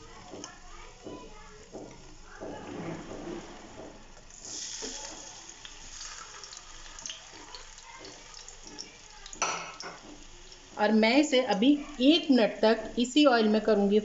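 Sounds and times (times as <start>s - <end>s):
potatoes sizzling in hot oil: 4.1s - 13.9s.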